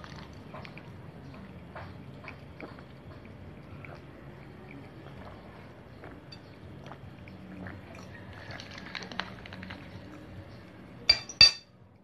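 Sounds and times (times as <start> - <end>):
cat chewing: 0.0 - 10.4.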